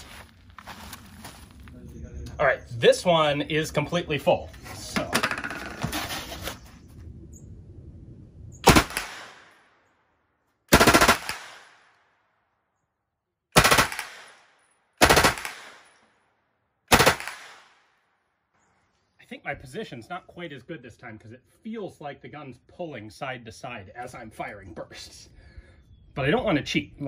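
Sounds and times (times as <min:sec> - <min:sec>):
submachine gun bursts with echo: 0:10.7 - 0:11.7, 0:15.0 - 0:15.8.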